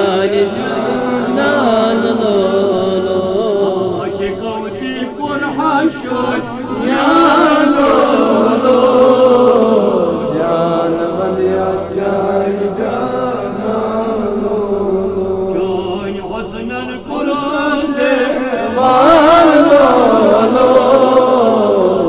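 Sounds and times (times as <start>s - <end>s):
devotional chanting: 0.0s - 22.0s.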